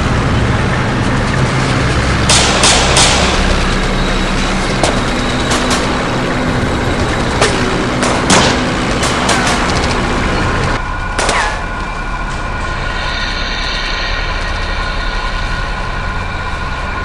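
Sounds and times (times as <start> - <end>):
low engine rumble: 0.0 - 17.0
gunshots: 7.4 - 10.0.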